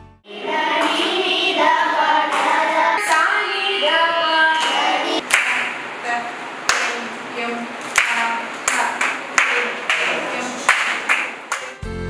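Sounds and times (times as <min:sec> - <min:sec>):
children singing in unison: 0:00.3 - 0:05.2
hand claps: 0:02.3 - 0:03.2, 0:04.6 - 0:05.8, 0:06.7 - 0:07.0, 0:07.9 - 0:11.9.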